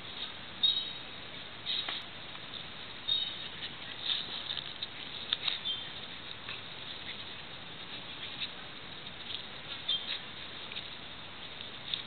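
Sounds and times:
bird chirping: 0.6 - 1.1, 3.0 - 3.5, 5.4 - 6.0, 9.7 - 10.3
dog chewing coconut husk: 3.1 - 12.0.

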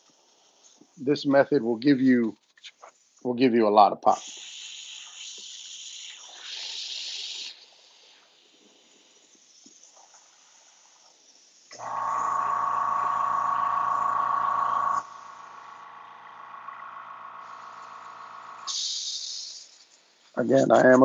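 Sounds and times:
airbrush spray hiss: 0.0 - 1.1, 4.1 - 16.4, 17.4 - 20.7
machine hum with high whine: 11.7 - 18.7.

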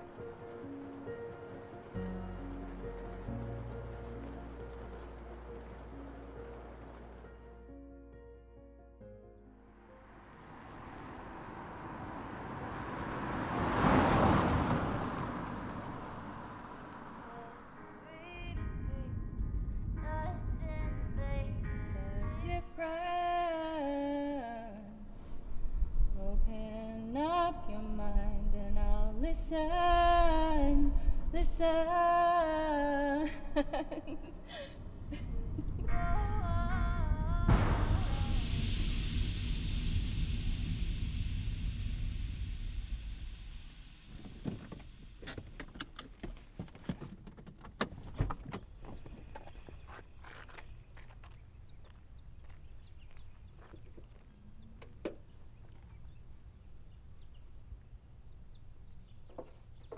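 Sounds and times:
car road noise: 0.0 - 7.7, 9.5 - 22.8, 27.0 - 59.9
woman singing slow song: 17.3 - 19.2, 20.0 - 25.4, 26.2 - 34.2, 35.8 - 38.4
high-pitched insect drone: 37.5 - 44.7
sharp clicks and knocks: 44.1 - 48.7
small chirps: 48.6 - 54.0.

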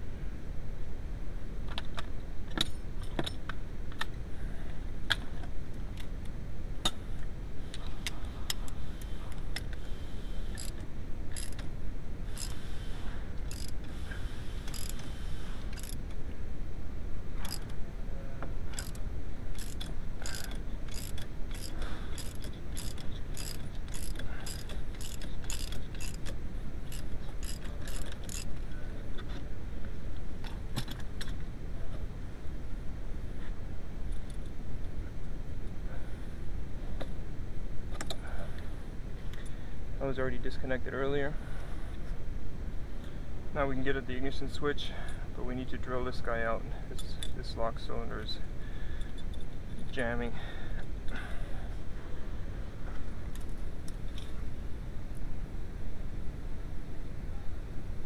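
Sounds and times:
low steady rumble: 0.0 - 58.0
ratchet wrench clicking: 10.5 - 11.7, 12.3 - 12.6, 13.5 - 13.8, 14.7 - 15.1, 15.7 - 16.0, 17.4 - 17.7, 18.8 - 19.0, 19.6 - 28.5.

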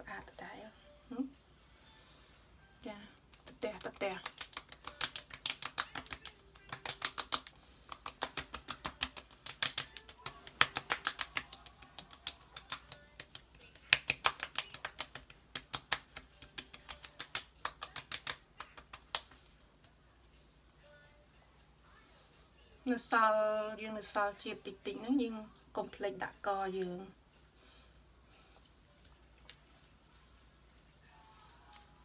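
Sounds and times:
palms patting face: 2.8 - 20.4, 28.6 - 32.0.

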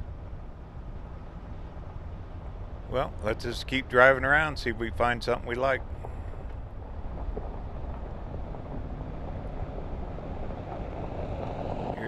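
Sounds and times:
tyres on dirt road: 0.0 - 12.0
vehicle engine rumble: 0.0 - 12.0
wind noise: 0.0 - 12.0.

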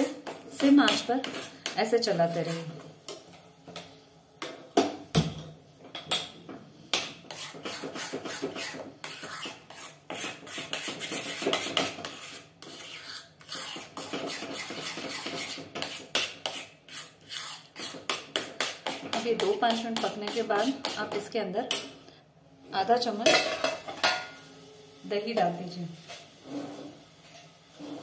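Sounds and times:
spoon scraping a pan: 0.0 - 4.0, 6.9 - 21.8, 26.0 - 28.0.

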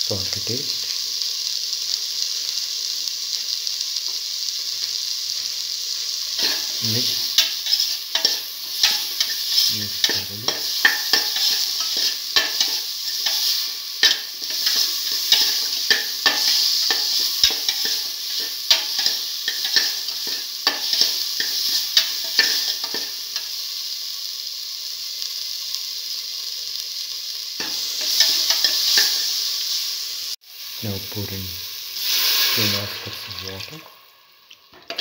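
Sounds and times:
vegetables sizzling in oil: 0.0 - 35.0
spoon stirring and scraping metal: 6.4 - 23.5, 27.6 - 29.2, 34.8 - 35.0.

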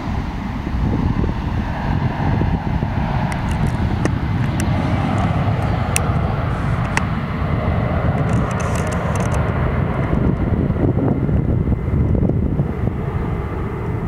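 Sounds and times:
jet airliner rumble: 0.0 - 14.0
sharp clicks: 8.2 - 9.4.

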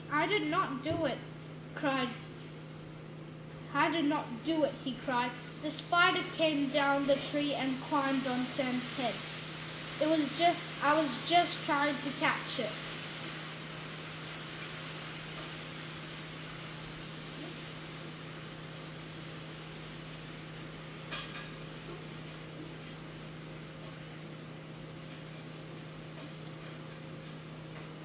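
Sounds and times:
low electrical hum: 0.0 - 28.0
steady hiss: 4.0 - 21.5.

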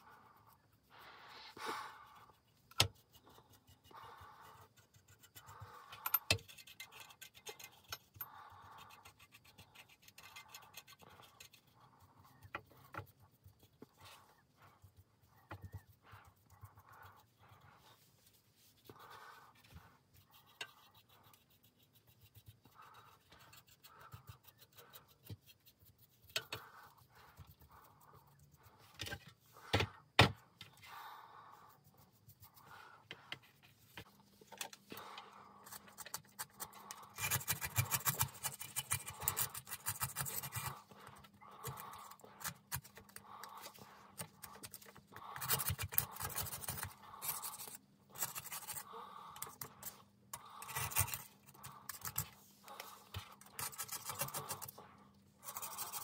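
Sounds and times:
paintbrush scrubbing metal: 0.0 - 29.7, 35.0 - 56.0.

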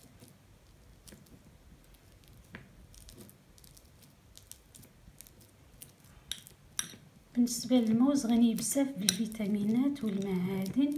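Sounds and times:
soft squishing of mashed banana: 0.0 - 10.9
fork clicking on ceramic bowl: 9.0 - 9.4.

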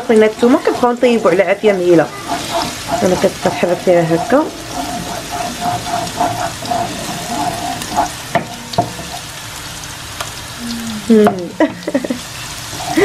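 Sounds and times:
garlic sizzling in oil: 0.0 - 13.0
wooden spoon knocking a pan: 0.3 - 9.2.

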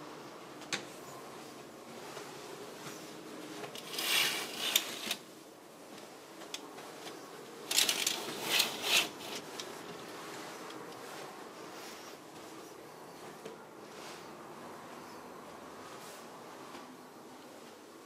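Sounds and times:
fabric curtain rustling: 1.9 - 5.4, 7.6 - 12.7.

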